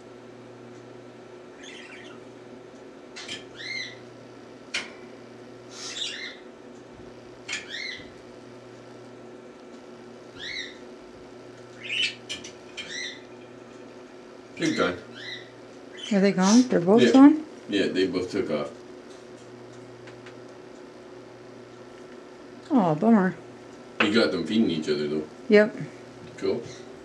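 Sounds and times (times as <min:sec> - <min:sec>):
sharp bird chip: 0:05.8 - 0:06.3
songbirds chirping: 0:10.4 - 0:10.8, 0:14.6 - 0:16.6.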